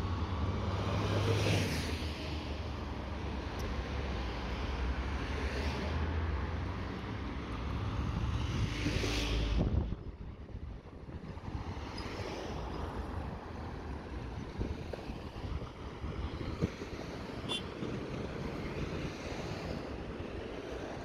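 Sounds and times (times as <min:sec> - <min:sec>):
vehicle road noise: 0:00.0 - 0:21.0
wind on microphone: 0:07.8 - 0:12.2, 0:12.9 - 0:21.0.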